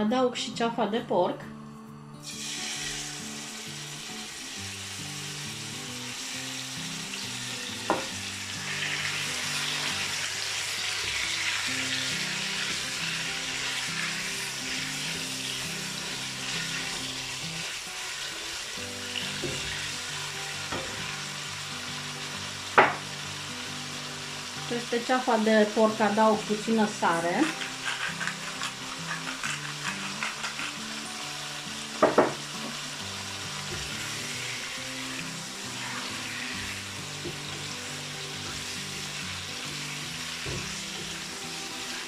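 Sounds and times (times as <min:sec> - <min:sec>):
quiet background music: 0:00.0 - 0:42.0
meat sizzling in hot oil: 0:02.2 - 0:42.0
spatula stirring: 0:27.4 - 0:31.1.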